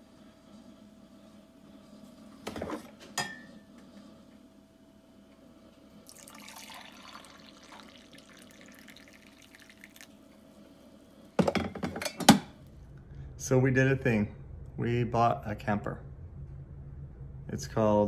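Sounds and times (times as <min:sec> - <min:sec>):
faint steady hum: 0:00.0 - 0:18.0
coffee pouring into mug: 0:06.0 - 0:10.3.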